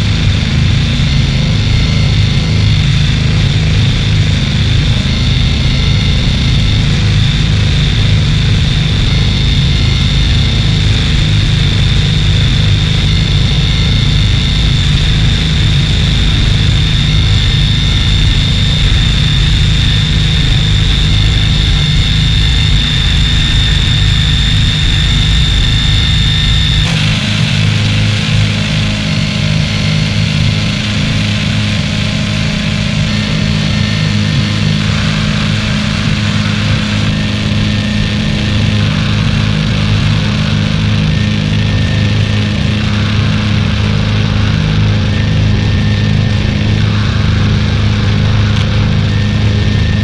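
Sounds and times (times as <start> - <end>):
low machine-like drone: 0.0 - 50.0.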